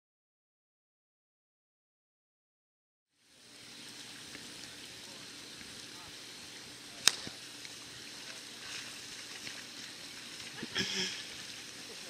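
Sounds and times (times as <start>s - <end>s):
fire hissing: 3.1s - 12.0s
fire popping: 3.3s - 12.0s.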